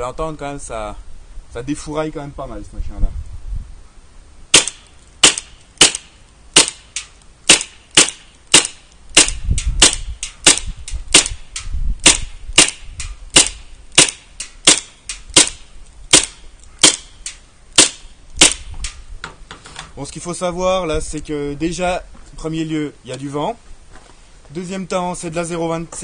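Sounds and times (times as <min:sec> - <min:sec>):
airsoft gun firing sharp cracks: 0:04.5 - 0:17.1, 0:17.8 - 0:19.0.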